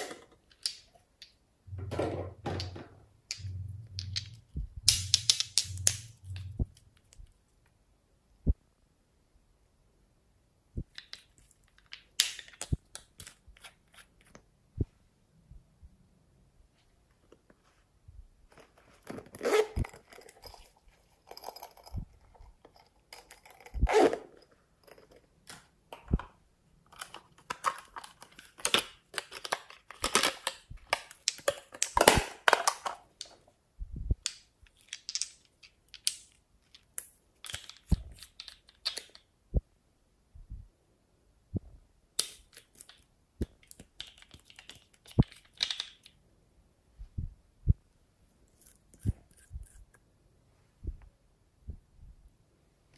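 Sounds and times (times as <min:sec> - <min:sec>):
plastic case clicks and rustles: 0:22.7 - 0:33.4.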